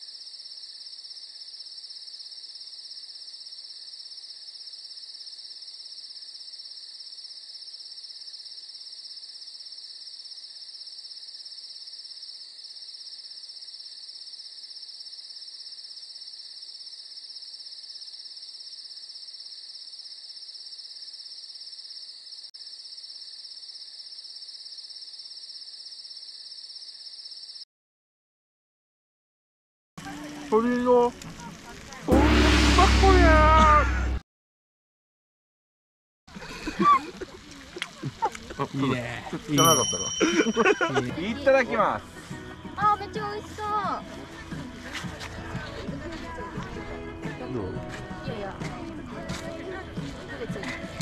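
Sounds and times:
insects trilling: 0:00.0 - 0:27.6.

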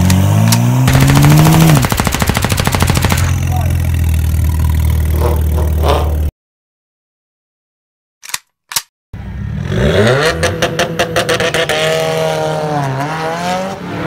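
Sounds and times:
car engine revving and idling: 0:00.0 - 0:02.0.

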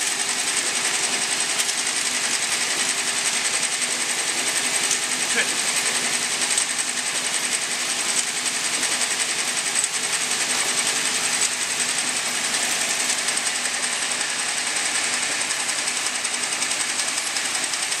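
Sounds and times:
high-pitched machine whine: 0:00.0 - 0:18.0
machine mechanical clatter: 0:00.0 - 0:18.0.

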